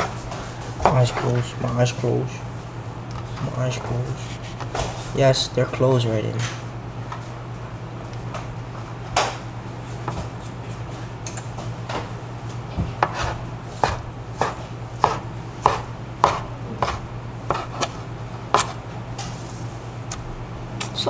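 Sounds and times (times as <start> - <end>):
knife chopping food: 12.8 - 18.8.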